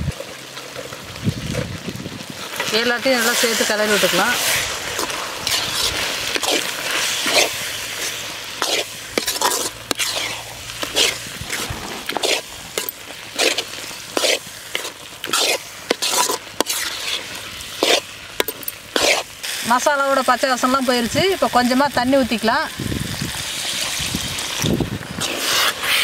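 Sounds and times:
masala sizzling: 0.0s - 26.0s
metal ladle scraping a pan: 3.2s - 19.5s, 25.2s - 26.0s.

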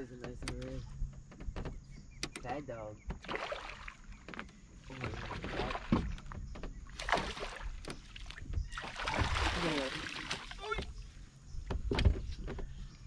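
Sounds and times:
water splashes: 3.2s - 10.9s
fish thrashing in a net: 7.0s - 7.9s, 8.7s - 10.7s.

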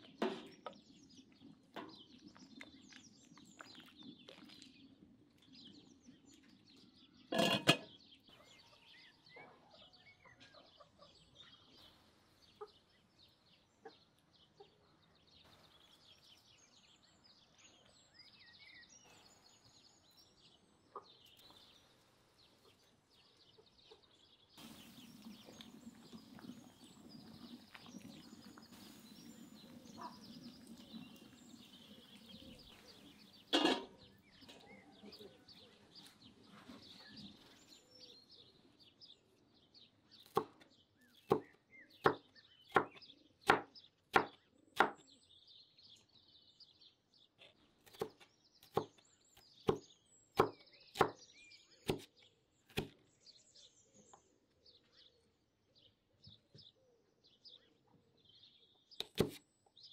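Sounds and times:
faint birds chirping: 0.0s - 59.9s
knife chopping on wooden board: 50.4s - 51.2s, 51.8s - 52.1s, 52.7s - 53.0s, 59.0s - 59.4s.

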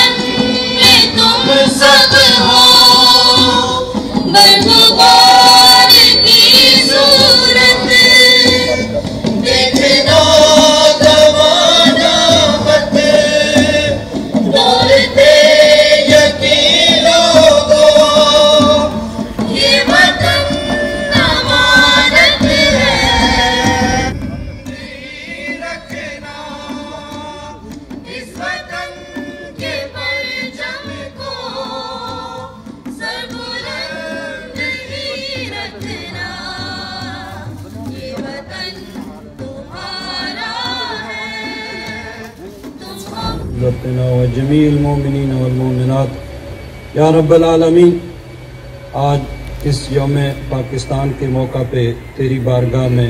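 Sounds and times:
group of voices singing: 0.0s - 47.1s
dholak drum: 0.0s - 53.0s.

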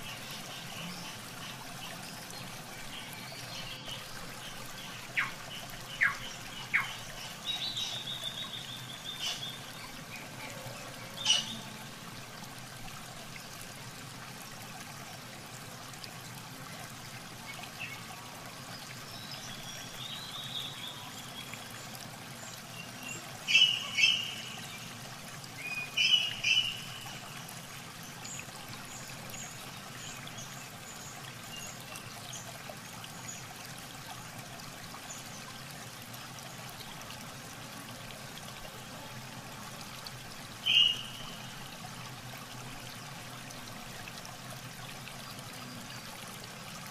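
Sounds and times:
running water trickling: 0.0s - 46.9s
birds chirping: 0.1s - 9.6s, 22.8s - 24.9s, 25.6s - 27.2s, 40.6s - 41.6s.

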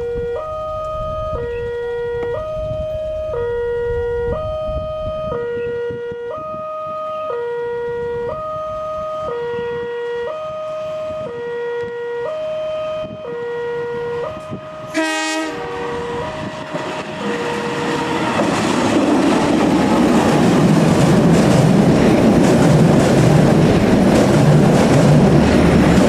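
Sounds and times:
two-tone crossing alarm: 0.0s - 18.6s.

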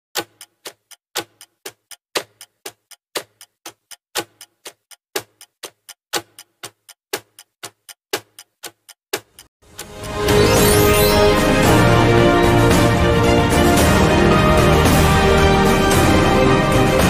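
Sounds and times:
clock ticking: 0.2s - 11.8s.

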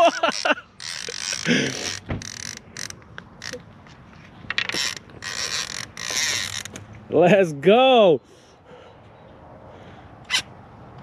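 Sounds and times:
fishing reel clicking and whirring: 0.2s - 3.6s, 4.6s - 6.8s.

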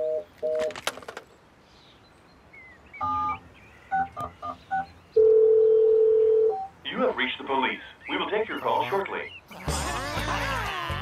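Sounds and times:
touch-tone dialing beeps: 3.0s - 6.7s
steady dial tone: 5.2s - 6.7s.

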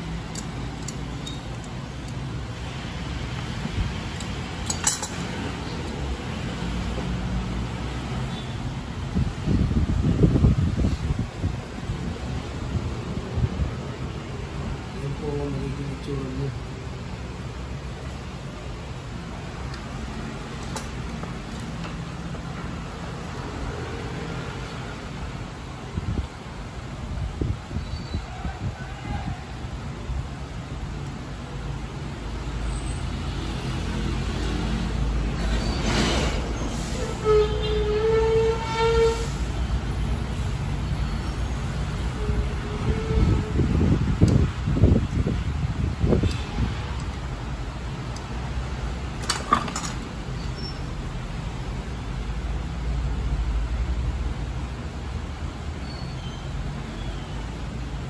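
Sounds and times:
vehicle horn steady note: 37.2s - 39.3s.

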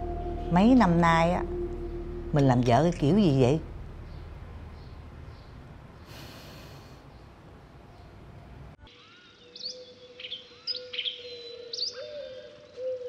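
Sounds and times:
steady held note: 0.0s - 5.2s
low room hum: 0.0s - 8.8s
bird chirping and calling: 0.5s - 5.6s, 8.9s - 13.0s.

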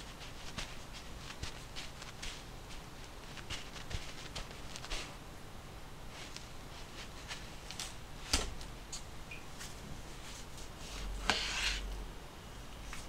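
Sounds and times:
knife scraping stroke: 10.9s - 11.9s.

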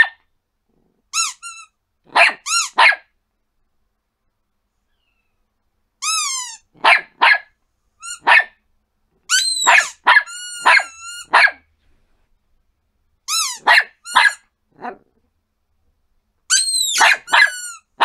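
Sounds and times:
small dog yapping: 0.0s - 0.2s, 2.1s - 3.1s, 6.7s - 7.5s, 8.1s - 8.6s, 9.3s - 11.7s, 13.4s - 15.1s, 16.5s - 18.0s
high-pitched squeaks: 1.2s - 1.8s, 6.0s - 6.7s, 9.3s - 11.4s, 16.5s - 17.9s.

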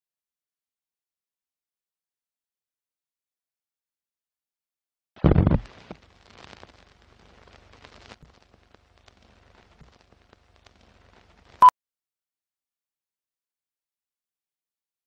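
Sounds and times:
film projector crackle and clicks: 5.7s - 11.6s.

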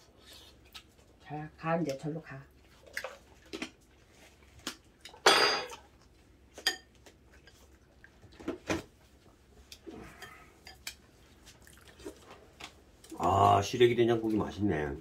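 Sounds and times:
utensils clinking against plates: 5.1s - 5.8s.

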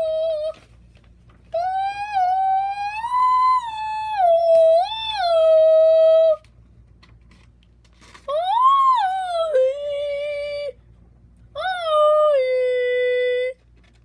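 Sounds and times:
high voice singing wordless notes: 0.0s - 0.7s, 1.5s - 6.4s, 8.3s - 10.8s, 11.5s - 13.6s.

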